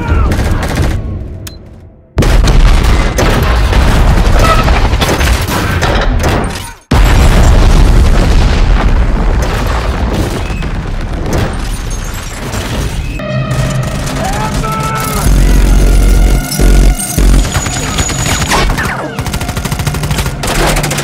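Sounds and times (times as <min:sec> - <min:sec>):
explosion blasts rumbling: 0:02.2 - 0:05.1, 0:06.9 - 0:17.6
film score music: 0:13.0 - 0:21.0.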